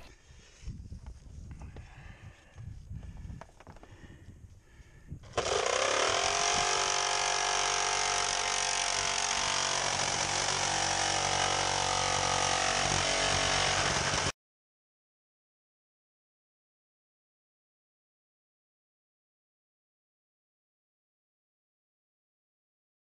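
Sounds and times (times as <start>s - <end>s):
jigsaw cutting metal roofing: 5.2s - 14.4s.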